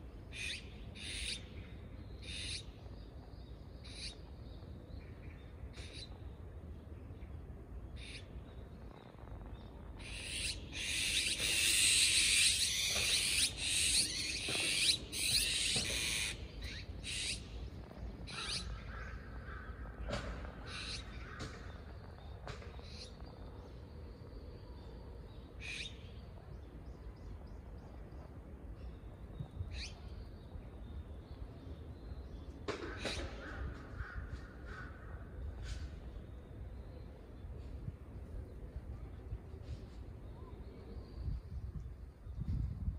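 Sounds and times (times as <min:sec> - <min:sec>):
magpies calling harshly: 0:00.3 - 0:01.5, 0:02.2 - 0:02.8, 0:10.0 - 0:19.9, 0:20.6 - 0:21.9, 0:25.6 - 0:26.0.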